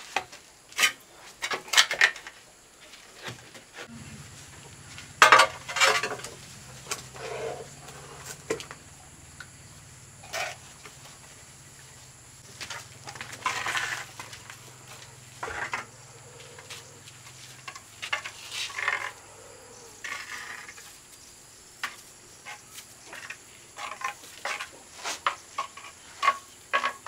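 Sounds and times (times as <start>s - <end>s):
faint low hum: 3.9s - 18.1s
tiling scrapes and knocks: 5.2s - 7.7s, 22.4s - 27.0s.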